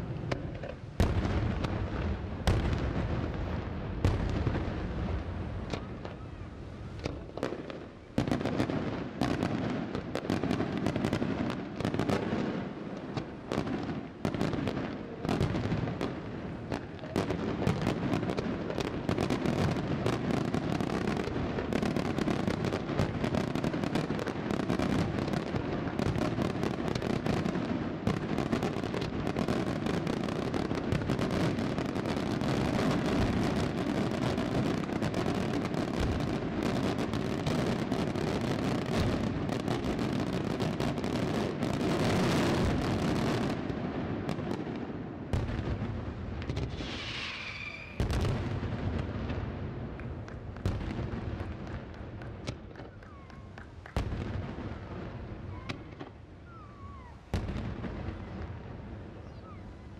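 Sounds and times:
firecracker bangs and crackling: 0:00.0 - 0:06.2, 0:06.8 - 0:59.6.

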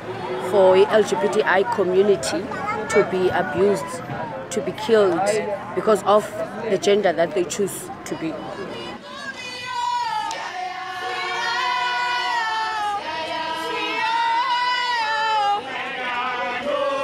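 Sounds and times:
women singing together: 0:08.1 - 0:17.0.

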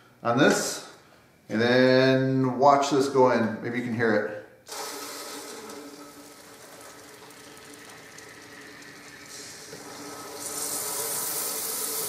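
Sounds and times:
pressure washer pump hissing: 0:04.7 - 0:06.4, 0:07.8 - 0:12.0.

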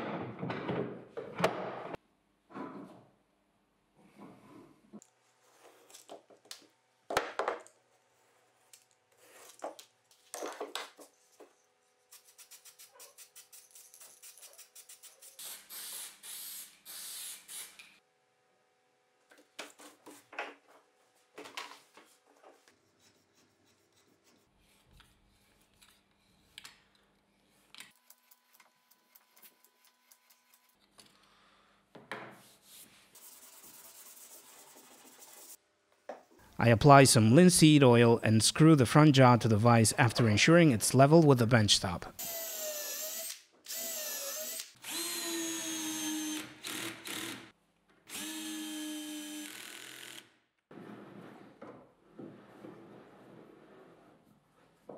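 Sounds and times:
hiss: 0:14.9 - 0:17.8.

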